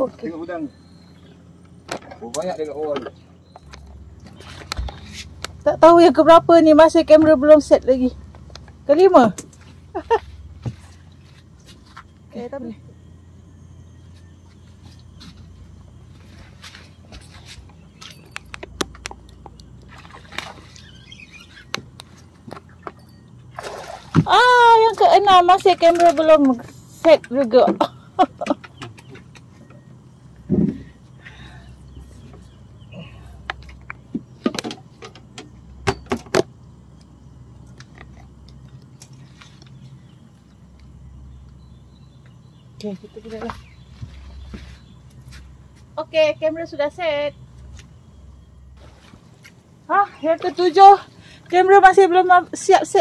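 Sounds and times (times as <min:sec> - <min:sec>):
low steady hum: 0:00.0 - 0:53.0
low steady rumble: 0:00.0 - 0:53.0
clicks and knocks on boat deck: 0:18.0 - 0:20.5, 0:25.6 - 0:29.8, 0:33.4 - 0:36.5.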